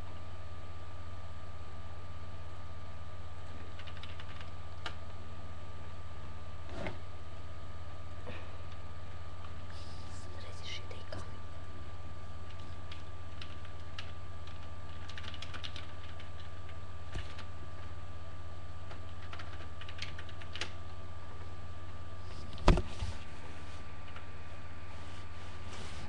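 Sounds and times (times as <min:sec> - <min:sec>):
steady electrical hum: 0:00.0 - 0:26.0
laptop keyboard typing: 0:03.5 - 0:05.0, 0:12.4 - 0:17.9, 0:18.8 - 0:20.8
loud thump: 0:22.6 - 0:23.0.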